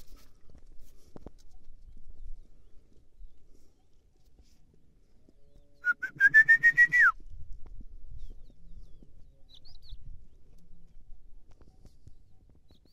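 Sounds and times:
person whistling: 5.8 - 7.2.

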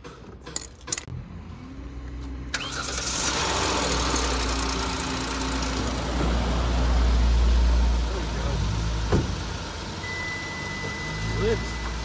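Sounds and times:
engine cranking by starter: 2.5 - 6.3
car engine idling: 2.6 - 12.0.

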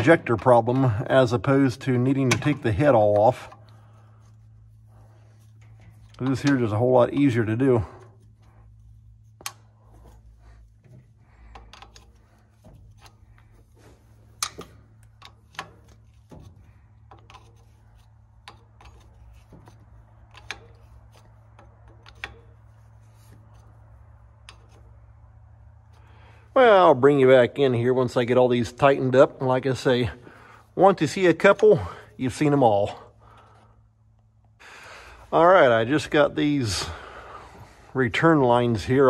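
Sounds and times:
hand tools clicking on metal: 0.0 - 4.1, 5.6 - 23.7
steady low hum: 0.0 - 39.0.

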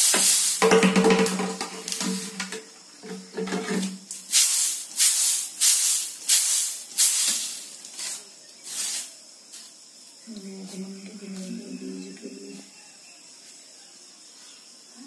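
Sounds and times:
seeds swishing on winnowing tray: 0.0 - 0.6, 1.8 - 2.4, 4.1 - 9.8.

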